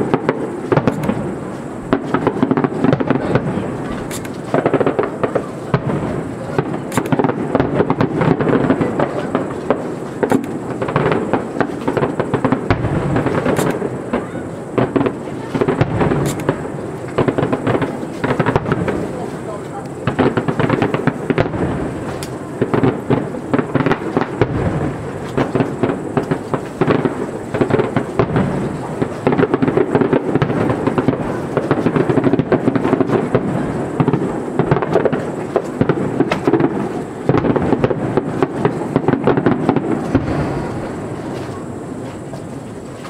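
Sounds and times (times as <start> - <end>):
continuous rumble: 0.0 - 43.0
firework bursts and crackles: 0.0 - 43.0.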